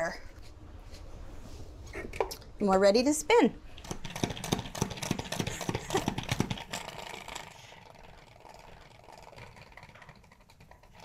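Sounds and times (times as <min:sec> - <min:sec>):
salad spinner basket whirring: 0:03.6 - 0:11.0
salad spinner plunger clattering: 0:03.7 - 0:11.0.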